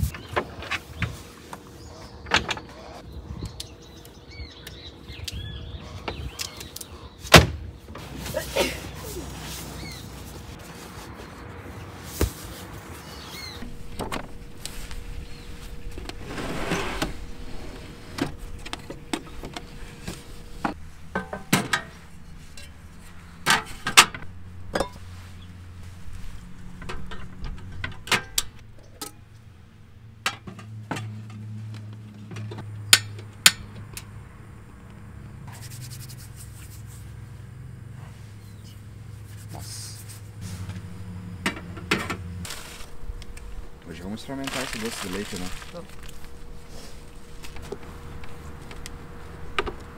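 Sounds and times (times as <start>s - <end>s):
low steady hum: 13.5s - 49.9s
objects being handled: 39.2s - 49.9s.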